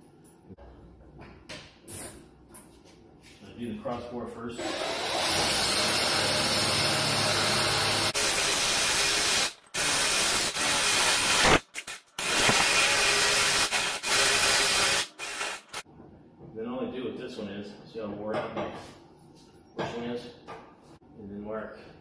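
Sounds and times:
cordless drill boring into wood: 4.6s - 11.6s, 12.2s - 15.8s.

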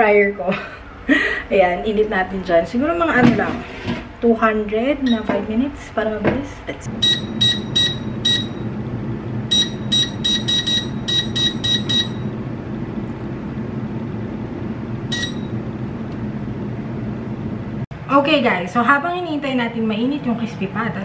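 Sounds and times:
steady low hum: 0.0s - 21.0s
touch-panel buttons beeping: 5.0s - 5.3s, 7.0s - 8.6s, 9.5s - 12.2s, 15.1s - 15.5s.

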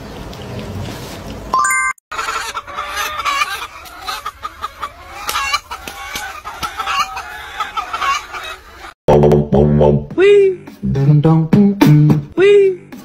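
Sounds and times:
hen clucking: 2.1s - 9.0s.

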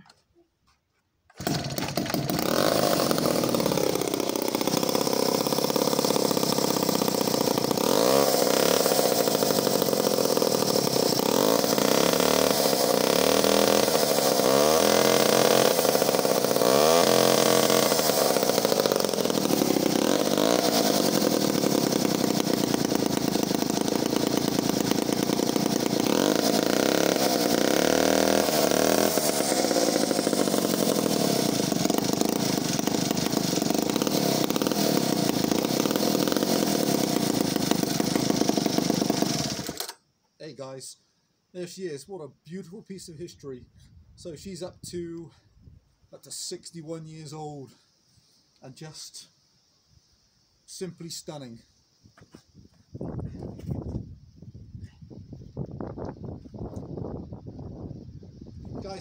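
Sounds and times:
chainsaw idling and revving: 1.3s - 40.0s.

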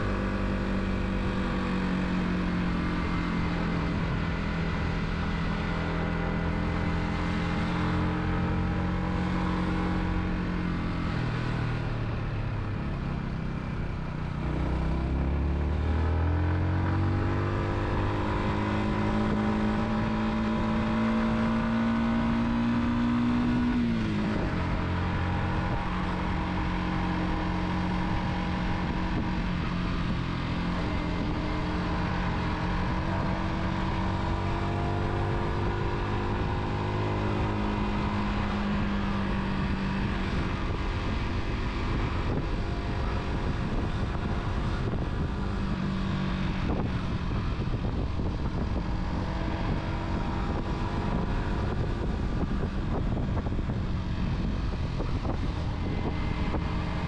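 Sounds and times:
road and wind noise: 0.0s - 57.0s
car engine running: 15.1s - 57.0s.

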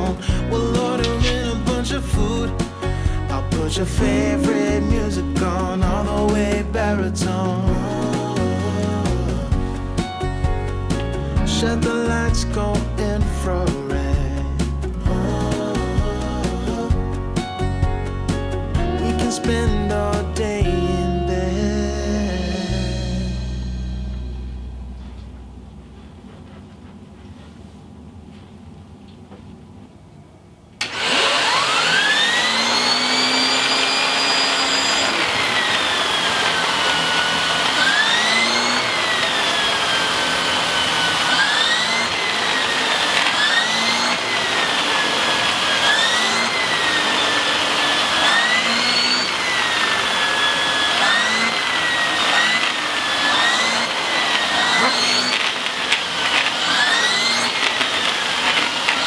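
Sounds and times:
vacuum cleaner motor whine: 30.8s - 59.0s.

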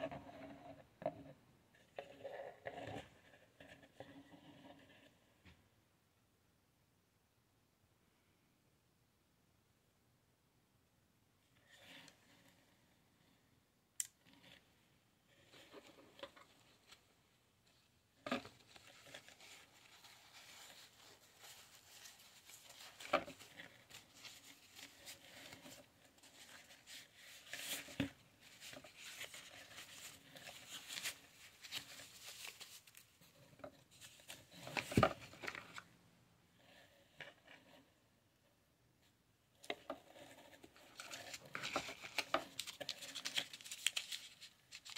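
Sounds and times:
plastic wrapping crinkling: 41.0s - 44.9s.

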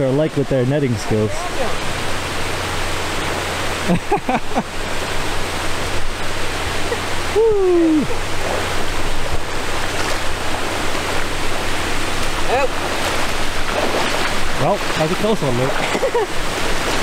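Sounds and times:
river water rushing: 0.0s - 17.0s
short falling vocal sound: 7.3s - 8.2s.

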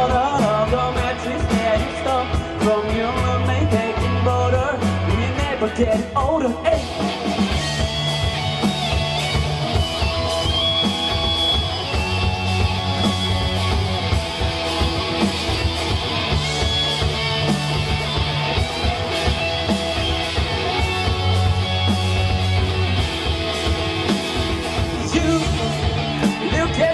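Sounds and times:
person singing: 0.0s - 7.0s, 24.9s - 26.9s
bass guitar: 0.0s - 26.9s
drum kit beat: 0.0s - 26.9s
electric guitars: 0.0s - 26.9s.

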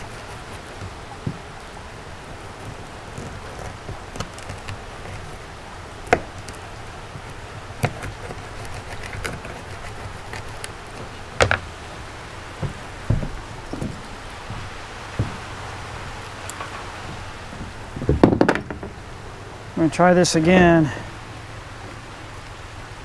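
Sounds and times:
dull thumps: 0.0s - 1.6s, 6.0s - 6.6s, 7.2s - 19.0s.

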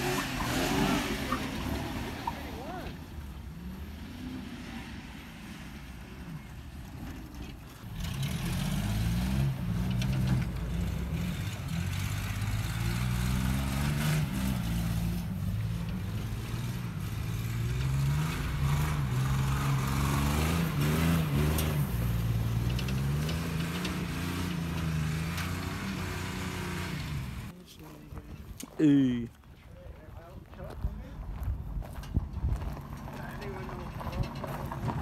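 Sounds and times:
pickup truck engine revving: 0.0s - 27.5s.

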